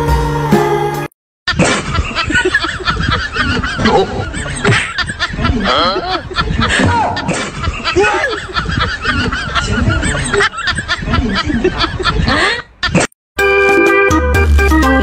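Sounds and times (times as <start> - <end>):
honking cackling laughter: 1.5 - 13.1.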